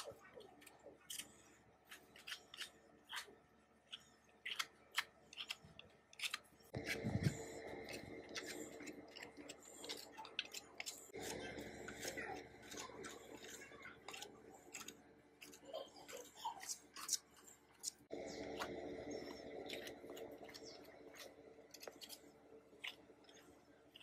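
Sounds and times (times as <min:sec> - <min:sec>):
low steady hum: 0:00.0 - 0:24.0
sponge pad scrubbing metal: 0:06.2 - 0:24.0.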